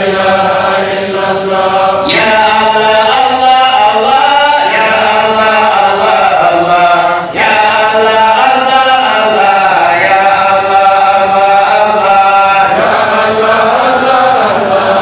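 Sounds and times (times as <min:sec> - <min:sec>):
man chanting through loudspeakers: 0:00.0 - 0:15.0.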